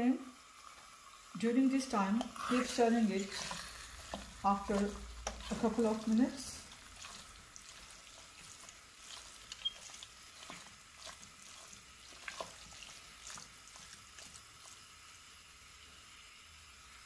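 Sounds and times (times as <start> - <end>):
faint sizzle of frying meat: 0.0 - 17.0
spoon scraping and knocking pot: 2.2 - 6.1.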